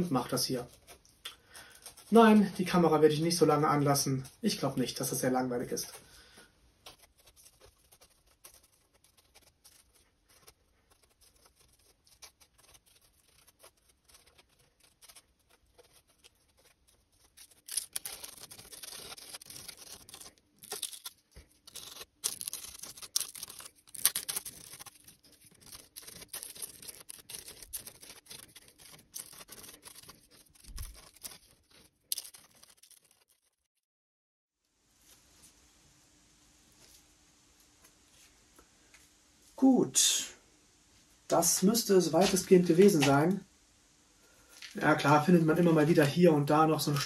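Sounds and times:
paintbrush handle scraping dried paste: 6.9s - 20.3s.

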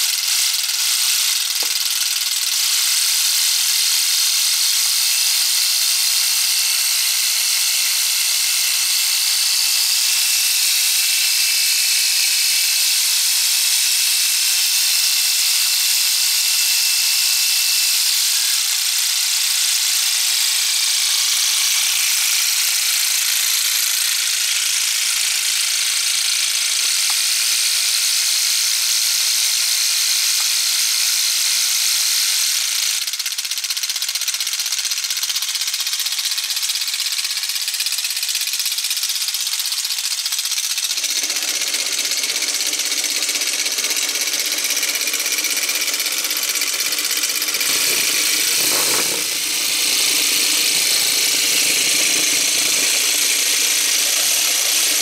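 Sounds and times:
plastic model engine clattering: 0.0s - 11.7s, 32.8s - 55.0s.

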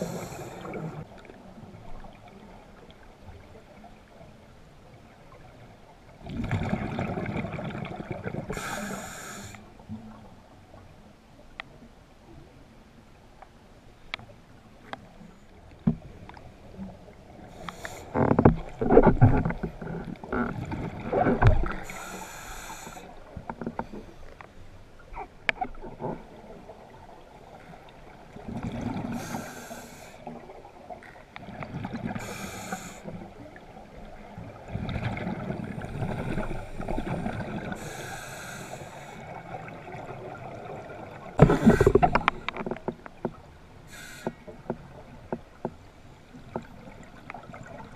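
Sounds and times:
diver breathing through regulator: 0.0s - 1.0s, 8.5s - 9.6s, 17.5s - 18.3s, 21.7s - 23.1s, 29.1s - 30.2s, 32.2s - 33.2s, 37.7s - 39.3s, 41.4s - 42.6s, 43.9s - 44.5s
exhaled bubbles hissing: 0.0s - 1.1s, 6.3s - 9.6s, 20.6s - 23.3s, 28.6s - 30.4s, 31.8s - 33.2s, 34.7s - 42.6s, 43.9s - 44.4s.

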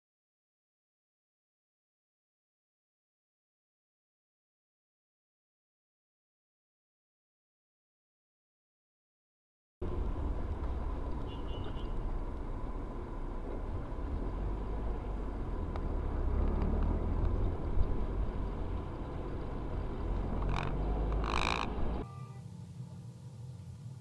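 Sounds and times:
car road and engine rumble: 9.8s - 24.0s.

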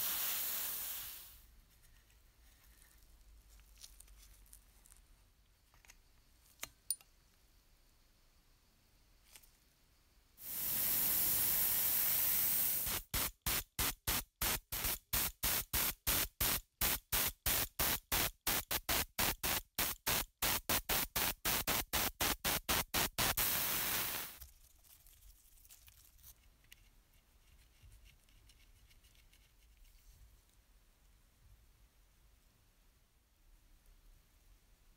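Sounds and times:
spray paint hissing: 0.0s - 1.4s, 10.4s - 24.4s.

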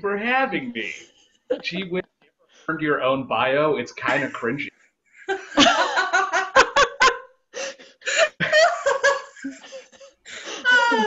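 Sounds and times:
women laughing: 4.1s - 4.5s, 5.2s - 7.3s, 8.0s - 11.0s.

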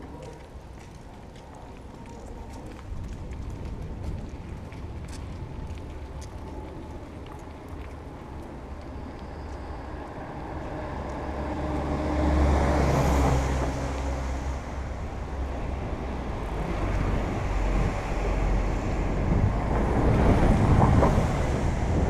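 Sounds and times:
steady low traffic rumble: 0.0s - 22.0s
vehicle passing by: 9.5s - 22.0s.

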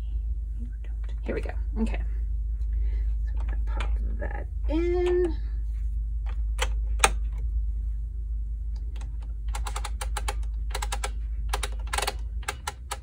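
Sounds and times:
plastic knitting machine clicking: 9.0s - 13.0s.

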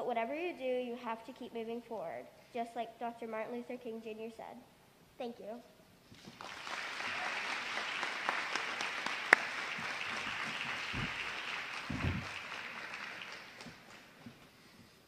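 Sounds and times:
audience applauding: 6.1s - 14.6s
dull low thumps: 10.9s - 11.2s, 11.9s - 12.4s.

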